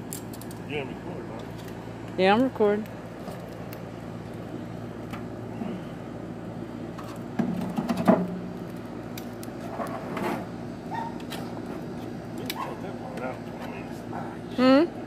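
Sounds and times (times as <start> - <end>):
grill grates clanking and scraping: 6.9 - 14.1.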